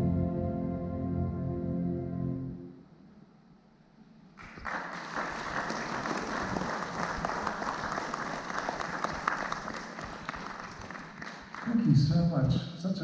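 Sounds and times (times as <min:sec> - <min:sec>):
audience applause: 0:04.4 - 0:12.1.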